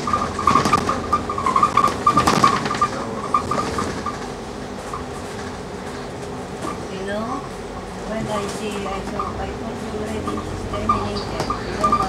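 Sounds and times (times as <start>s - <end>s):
stuttering high squeak: 0.0s - 4.3s, 10.2s - 12.0s
clattering rattles: 0.0s - 5.6s
bus cabin noise: 0.0s - 12.0s.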